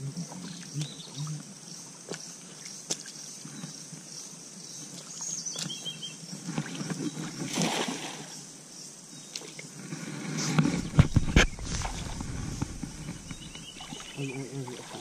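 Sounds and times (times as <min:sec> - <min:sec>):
footsteps sloshing through water: 0:02.0 - 0:03.6, 0:10.6 - 0:15.0
cast net splashing on water: 0:07.4 - 0:08.3.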